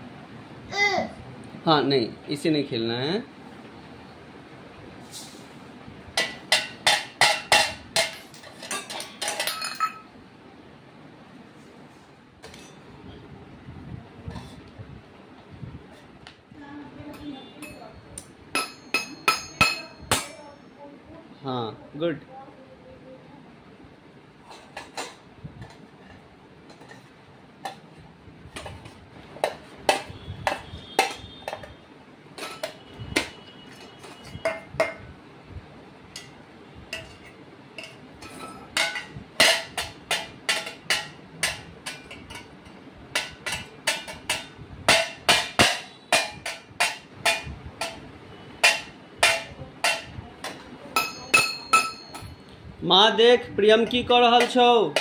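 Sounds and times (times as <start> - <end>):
spoon clinking on metal plate: 6.2 - 10.1, 18.6 - 20.4, 32.4 - 35.0, 36.2 - 48.0, 48.6 - 52.5.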